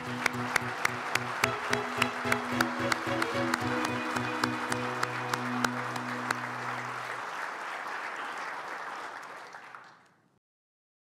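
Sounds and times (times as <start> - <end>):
background music held note: 0.0 - 7.3
audience applause: 0.0 - 10.2.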